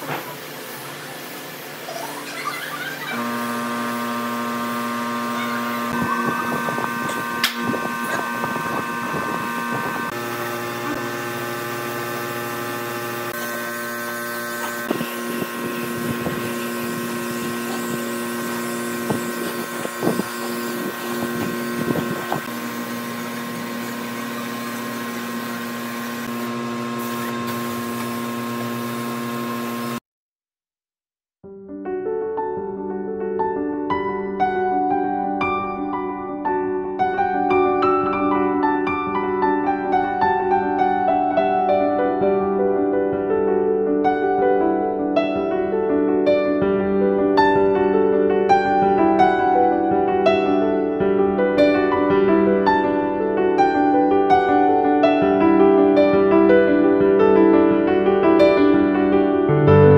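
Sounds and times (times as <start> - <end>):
mechanical hum: 0.0 - 30.0
spray gun hissing: 14.2 - 30.0.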